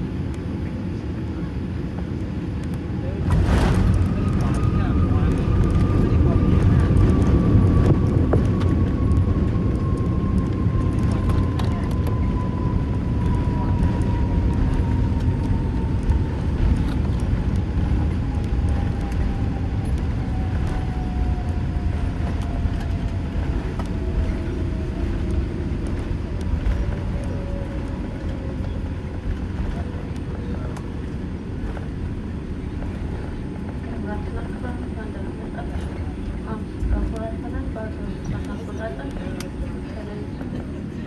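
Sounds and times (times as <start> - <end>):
airliner cabin rumble: 0.0 - 41.0
falling pitch whine: 3.3 - 29.8.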